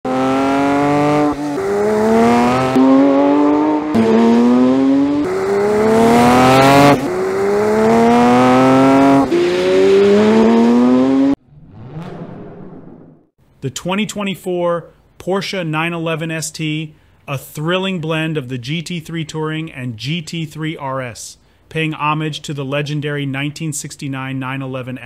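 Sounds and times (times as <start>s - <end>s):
car engine accelerating: 0.1s - 13.3s.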